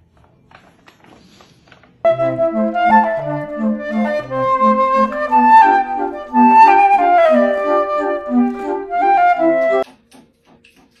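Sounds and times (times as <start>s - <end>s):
melody over repeating bass line: 2.1s - 9.8s.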